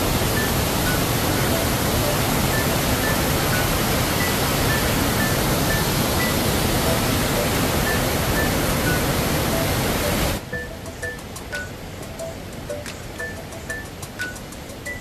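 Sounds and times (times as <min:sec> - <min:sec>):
background music: 0:00.0 - 0:15.0
waterfall rushing: 0:00.0 - 0:15.0.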